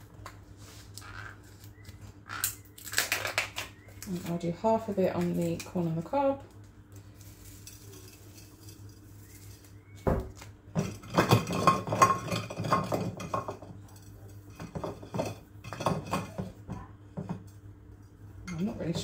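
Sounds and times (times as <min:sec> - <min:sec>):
corn knocking against glass dish: 0:07.7 - 0:13.9.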